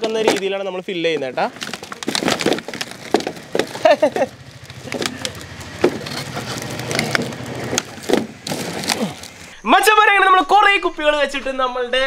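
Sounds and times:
plastic bottles crackling and knocking: 0.0s - 9.5s.

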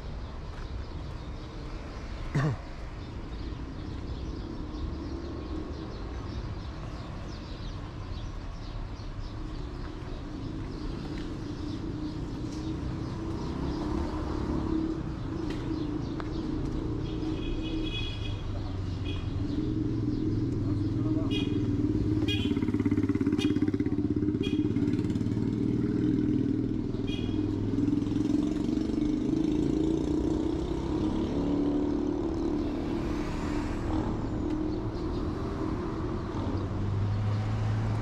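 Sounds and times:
traffic rumble: 0.0s - 38.0s
vehicle engine passing: 18.7s - 38.0s.

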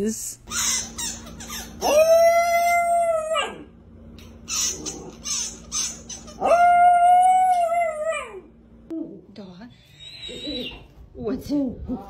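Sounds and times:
rubber squeaky toy squeaking: 0.5s - 1.8s, 4.5s - 6.4s.

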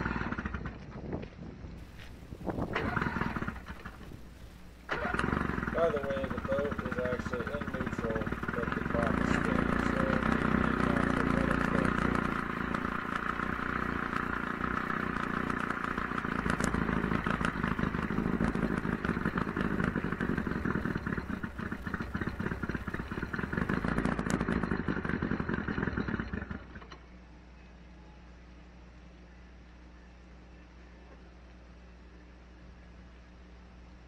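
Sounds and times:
outboard engine running: 0.0s - 0.8s, 1.8s - 27.1s.

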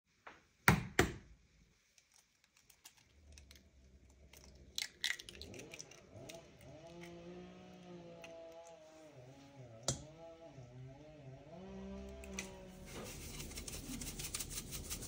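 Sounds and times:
egg shell cracking: 1.9s - 7.1s.

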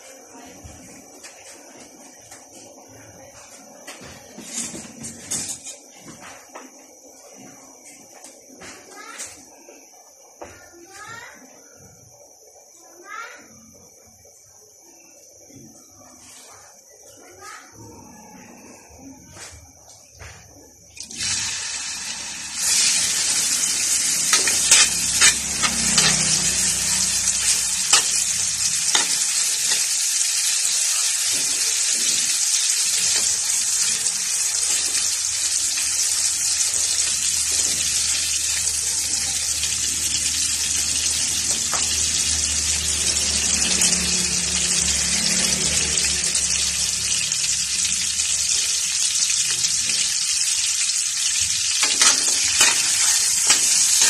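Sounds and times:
food sizzling in hot oil: 21.0s - 54.0s
metal spatula scraping wok: 22.6s - 33.9s, 51.8s - 54.0s.

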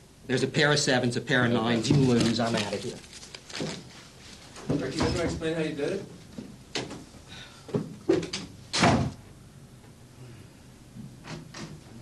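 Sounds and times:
door thud: 8.8s - 9.2s.

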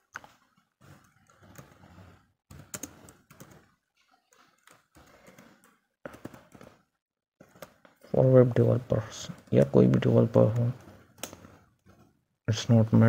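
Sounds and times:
computer keyboard typing: 0.9s - 3.7s, 4.3s - 6.8s.

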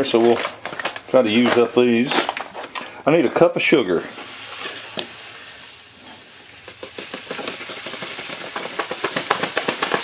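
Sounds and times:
sugar pouring into plastic cup: 4.2s - 10.0s.

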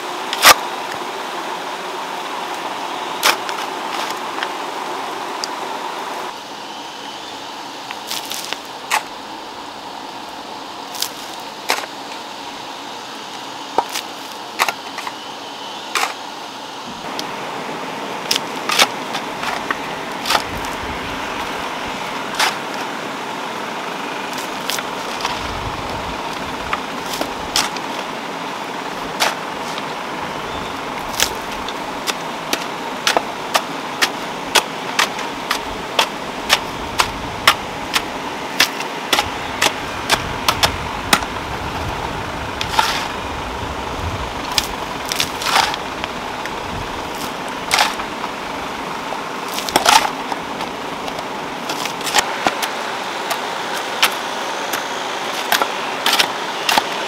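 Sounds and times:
hoes chopping stony soil: 3.2s - 4.3s, 7.9s - 9.1s, 10.9s - 12.0s, 13.8s - 15.2s, 16.0s - 16.2s, 18.2s - 22.9s, 24.3s - 28.1s, 28.9s - 29.9s, 30.5s - 43.3s, 44.4s - 48.4s, 49.5s - 57.0s.

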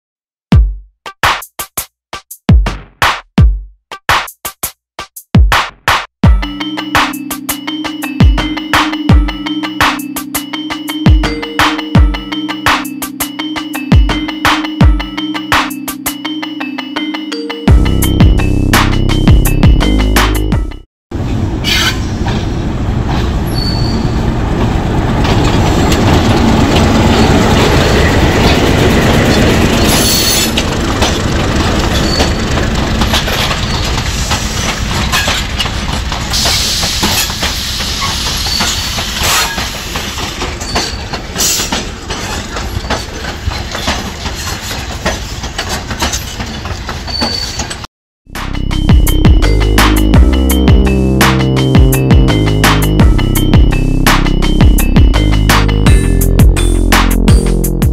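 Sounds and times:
locomotive engine running: 6.6s - 20.6s, 24.1s - 47.2s, 48.4s - 57.8s
high wheel squeals: 23.5s - 24.3s, 26.4s - 47.9s
train wheels clicking on rail joints: 25.1s - 47.9s.

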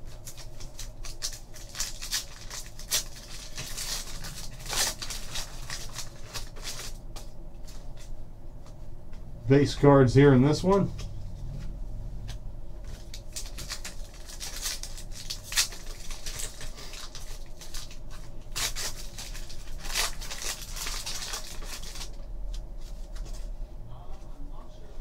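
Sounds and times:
foil pack tearing and crinkling: 0.0s - 7.2s, 12.9s - 23.3s.

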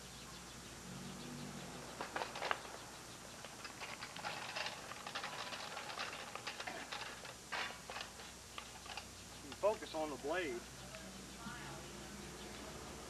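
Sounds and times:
lawn edger clicking and rattling: 3.4s - 9.8s.

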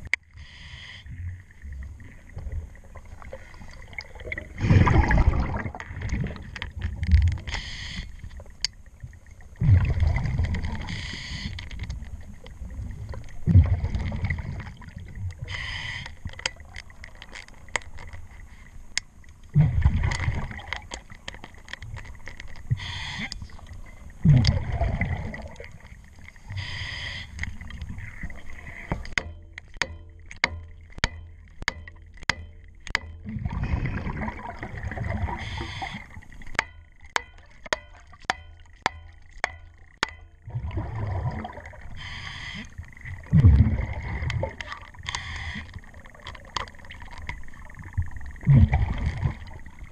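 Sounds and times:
diver exhaling bubbles: 4.0s - 6.5s, 24.2s - 25.7s, 33.3s - 36.0s, 48.4s - 49.5s.

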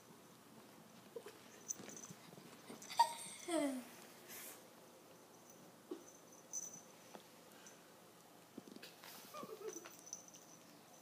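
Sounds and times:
small bell tinkling: 5.2s - 7.0s, 9.6s - 11.0s.

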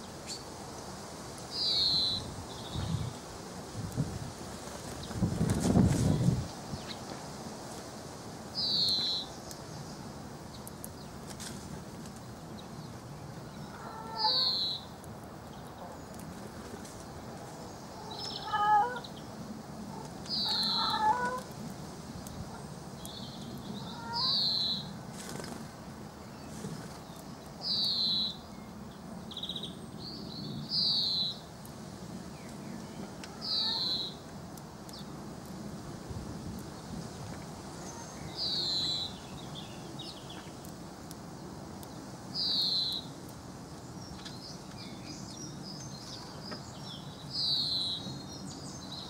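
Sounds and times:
faint outdoor hiss: 0.0s - 49.0s
finch calling: 20.3s - 21.4s.

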